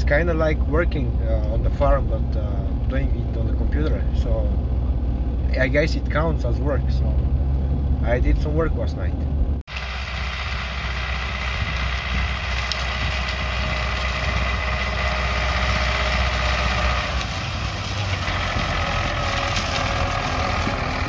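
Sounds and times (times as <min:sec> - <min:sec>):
deep low rumble: 0:00.0 - 0:21.0
tractor engine under load: 0:09.2 - 0:21.0.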